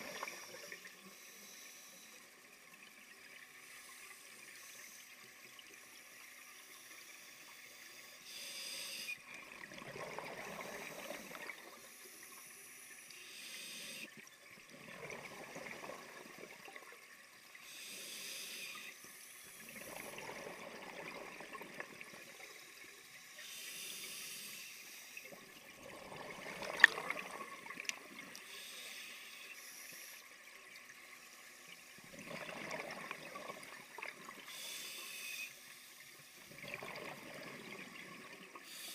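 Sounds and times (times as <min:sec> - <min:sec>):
regulator inhalation hiss: 0:00.0 - 0:02.2, 0:05.9 - 0:09.2, 0:10.6 - 0:14.1, 0:17.6 - 0:19.8, 0:22.3 - 0:25.3, 0:28.4 - 0:30.3, 0:34.5 - 0:36.0, 0:38.6 - 0:38.9.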